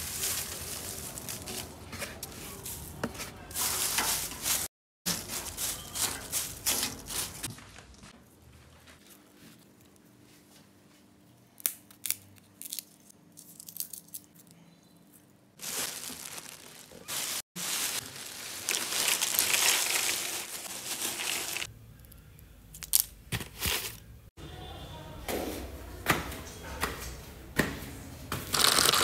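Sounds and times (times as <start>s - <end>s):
plastic bag rustling: 0.0s - 9.8s, 15.6s - 21.7s, 28.5s - 29.0s
peanut shells cracking: 11.6s - 14.6s, 22.0s - 23.2s, 28.5s - 29.0s.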